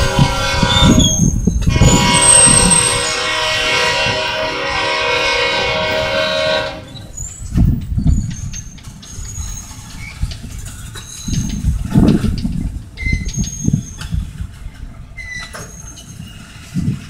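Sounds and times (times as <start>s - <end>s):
locomotive air horn: 0.0s - 7.2s.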